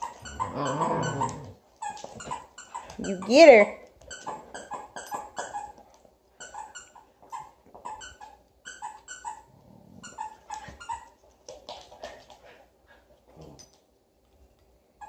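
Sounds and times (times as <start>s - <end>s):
puppy yipping and barking: 6.5s - 9.5s.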